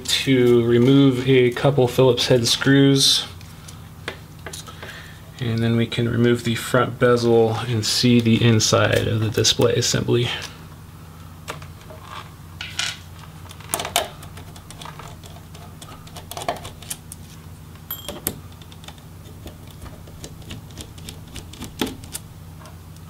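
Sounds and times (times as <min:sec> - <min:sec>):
low steady hum: 0:00.0 - 0:23.0.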